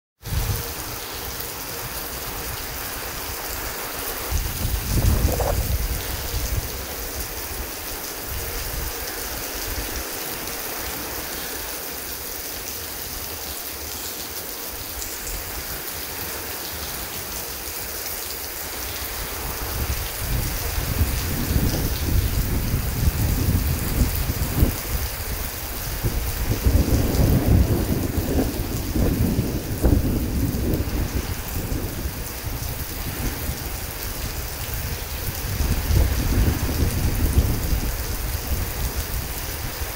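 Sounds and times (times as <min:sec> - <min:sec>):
heavy rain falling: 0:00.2 - 0:39.9
low thunder rumbling: 0:04.2 - 0:07.8, 0:19.5 - 0:39.9.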